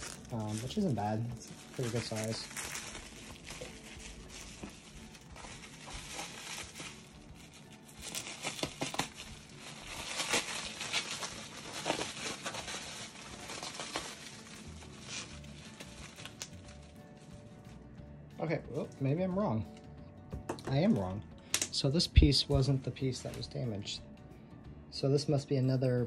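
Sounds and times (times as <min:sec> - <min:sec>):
packing wrap crinkling: 0:00.0 - 0:17.5.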